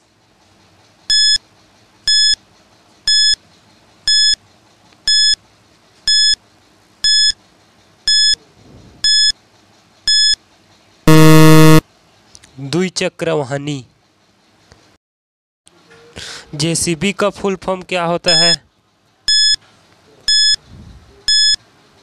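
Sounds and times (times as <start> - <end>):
short high electronic beeps: 8.1 - 8.4, 9.0 - 9.3, 10.1 - 10.4, 11.1 - 11.8, 18.3 - 18.6, 19.3 - 19.6, 20.3 - 20.6, 21.3 - 21.6
low buzzer tone: 11.1 - 11.8, 19.3 - 19.6, 20.3 - 20.6.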